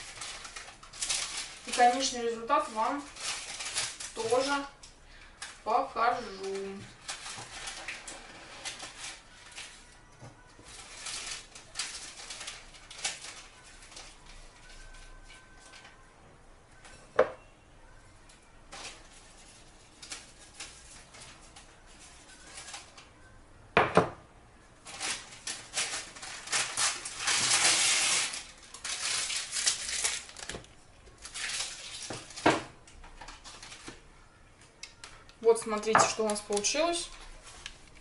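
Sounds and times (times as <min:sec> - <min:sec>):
kitchenware clacks and knocks: 0:23.8 - 0:24.2
kitchenware clattering and scraping: 0:35.8 - 0:36.5.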